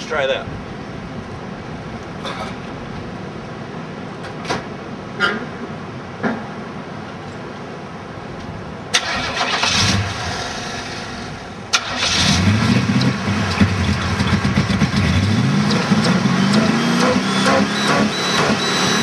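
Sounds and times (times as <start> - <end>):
car engine cranking and starting: 8.9 - 19.0
car engine running: 9.2 - 19.0.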